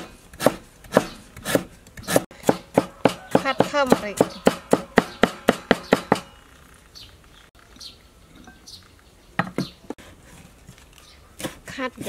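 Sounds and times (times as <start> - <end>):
cleaver chopping on wooden board: 0.0 - 6.2
sharp knocks: 2.1 - 6.4.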